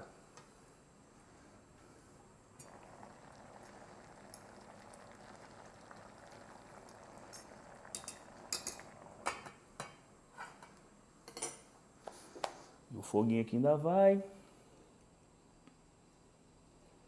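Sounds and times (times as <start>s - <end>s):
stew bubbling in pot: 2.5s - 10.3s.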